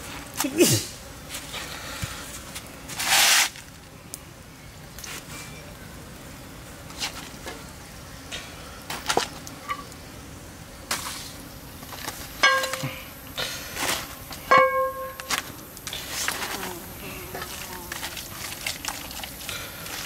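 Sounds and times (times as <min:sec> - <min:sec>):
metallic pan rings: 0:12.4 - 0:12.9, 0:14.5 - 0:15.3
meat handling noises: 0:15.2 - 0:20.0.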